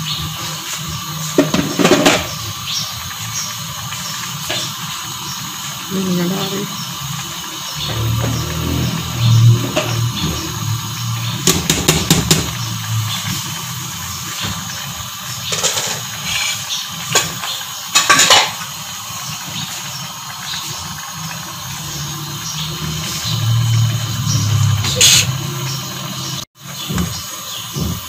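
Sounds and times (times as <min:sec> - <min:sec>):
wooden spoon knocking on metal pot: 0:11.4 - 0:12.6.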